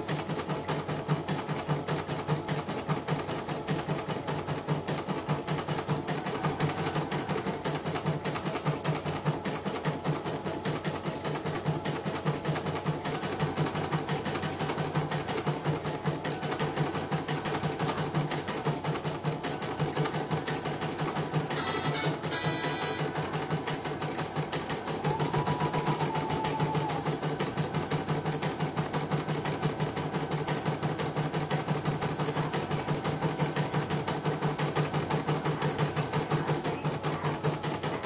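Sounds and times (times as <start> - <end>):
embroidery machine clattering: 12.6 - 38.0
short high-pitched tone: 21.6 - 23.2.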